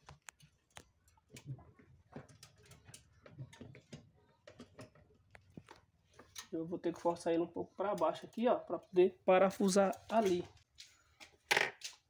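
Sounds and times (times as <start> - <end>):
faint clicks and taps on metal: 0.0 - 6.5.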